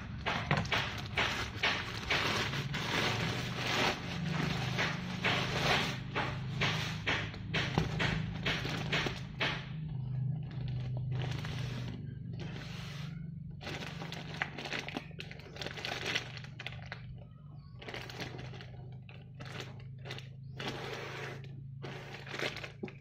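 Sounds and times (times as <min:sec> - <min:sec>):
plastic bag crinkling: 0:00.6 - 0:06.2, 0:10.4 - 0:17.2, 0:17.8 - 0:23.0.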